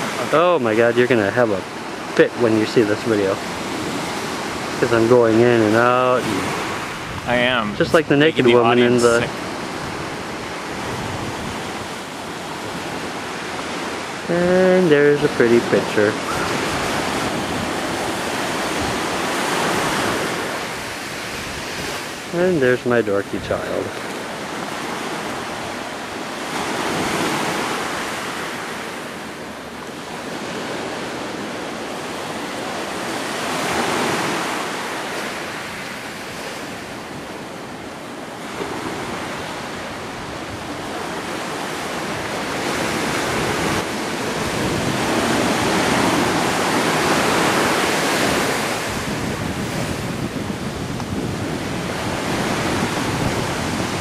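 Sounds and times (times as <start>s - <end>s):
ocean surf on pebble shore: 0.0s - 54.0s.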